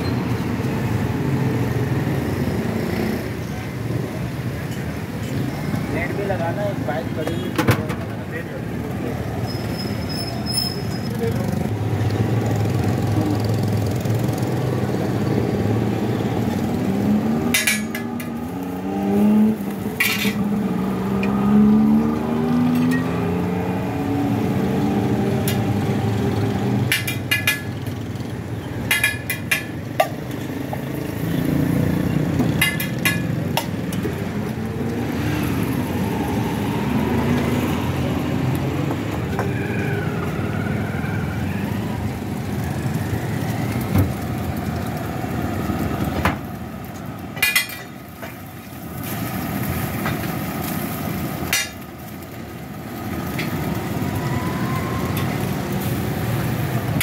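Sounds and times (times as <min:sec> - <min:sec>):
passing traffic: 0:00.0 - 0:57.0.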